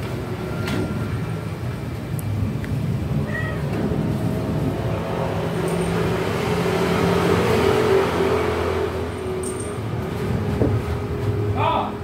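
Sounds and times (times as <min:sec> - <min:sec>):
vehicle engine passing by: 0:02.3 - 0:11.6.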